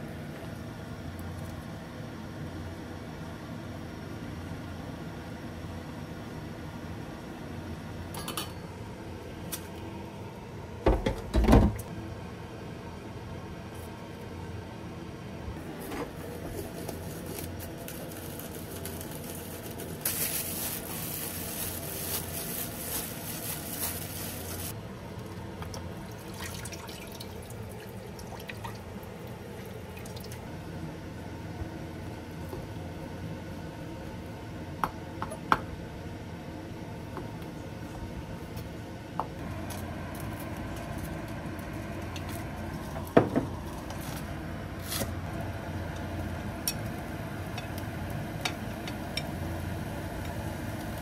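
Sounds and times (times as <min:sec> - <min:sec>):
water pouring into frying pan: 0:26.1 - 0:28.9.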